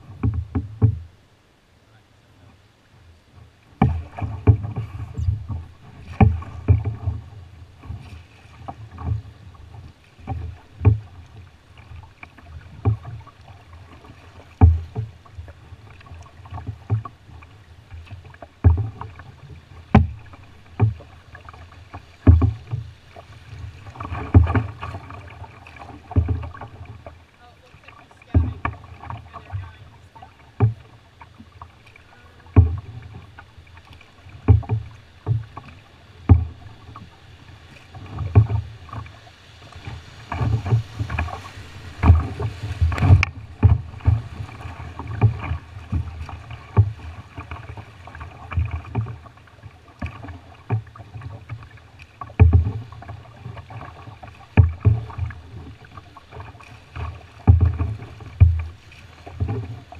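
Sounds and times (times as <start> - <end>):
low thump on hull: 0.0 - 1.1, 3.7 - 37.2, 37.8 - 59.9
river water rushing against canoe: 0.0 - 59.9.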